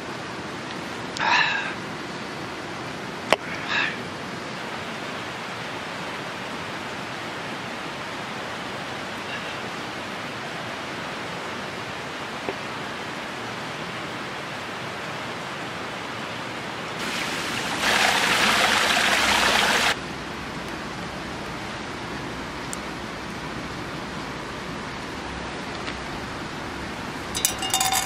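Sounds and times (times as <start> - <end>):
river running over rocks: 3.0 - 20.0, 26.4 - 28.0
loud hissy rush: 17.0 - 20.0.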